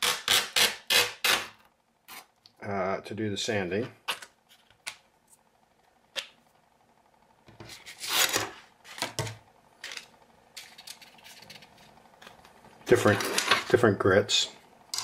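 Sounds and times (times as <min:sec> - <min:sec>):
objects set down on desk: 0:08.9 - 0:10.0.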